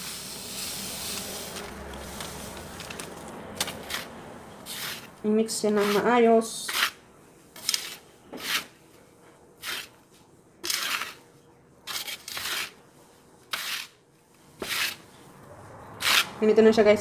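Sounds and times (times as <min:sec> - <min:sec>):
breadcrumbs rustling in metal pan: 0:10.6 - 0:13.9.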